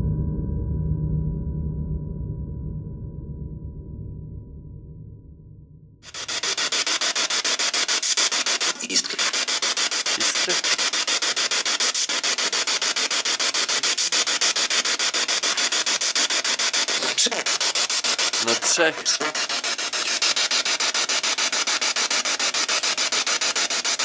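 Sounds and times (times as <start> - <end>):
loud radio static: 6.0 - 24.0
rapid even ticking: 6.0 - 24.0
broken radio voice fragments: 6.1 - 24.0.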